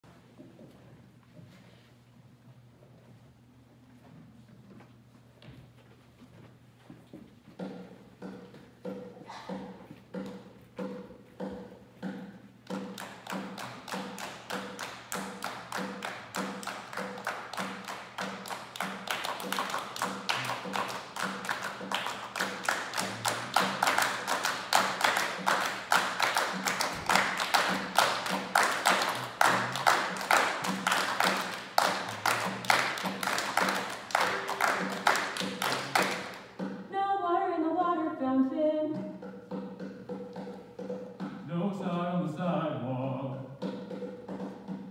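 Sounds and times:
rhythmic hand clapping and tapping: 7.6s - 36.9s, 38.9s - 41.7s, 43.5s - 44.9s.

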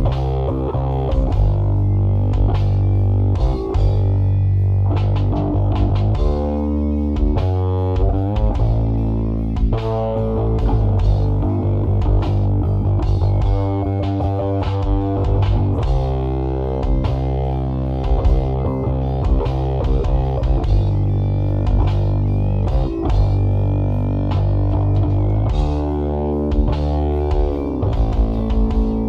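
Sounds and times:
electric bass guitar: 0.0s - 29.0s
guitar: 0.0s - 29.0s
drum hits: 9.6s - 16.2s, 19.2s - 21.0s.

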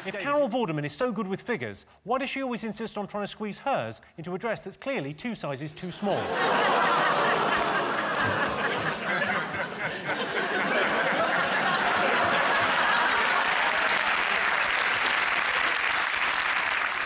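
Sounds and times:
audience laughing: 0.0s - 0.2s, 5.8s - 15.8s
audience applauding: 6.6s - 17.0s.

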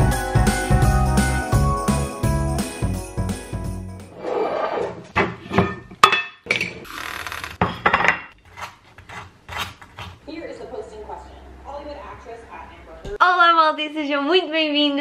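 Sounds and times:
knife scraping butter on toast: 8.4s - 10.2s.

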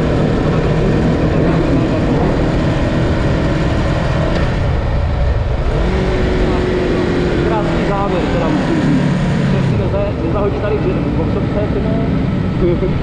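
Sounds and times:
motorcycle engine running loud: 0.0s - 13.0s.

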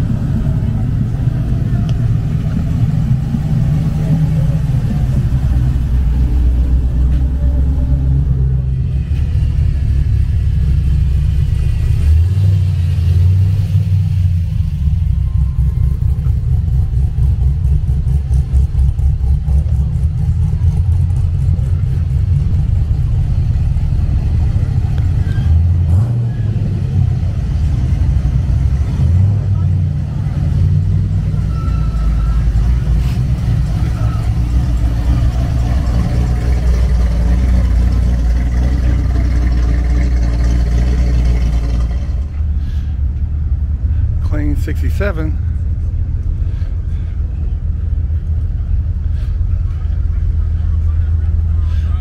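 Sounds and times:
car engines rumbling past: 0.0s - 52.0s.

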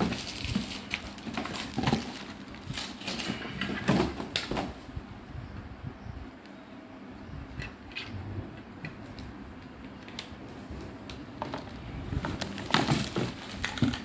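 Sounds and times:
plastic bags crinkling: 0.0s - 4.6s, 11.2s - 14.0s
plastic parts clicking and knocking: 0.0s - 4.7s, 11.0s - 14.0s
low steady hum: 0.0s - 14.0s.

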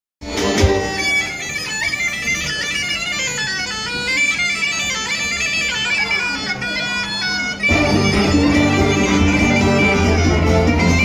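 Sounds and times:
folk band playing outdoors: 0.2s - 11.0s
steady drone: 7.7s - 11.0s.

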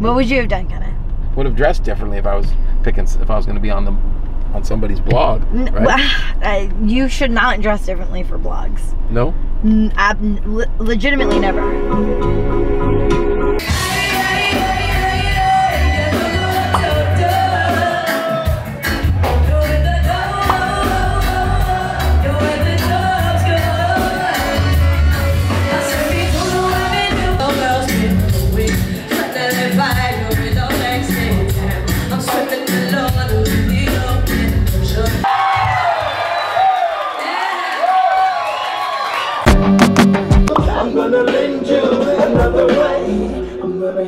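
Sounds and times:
live rock band playing: 11.2s - 35.2s, 39.4s - 41.4s
woman singing into microphone: 13.7s - 18.4s, 19.4s - 24.8s, 25.5s - 35.2s.

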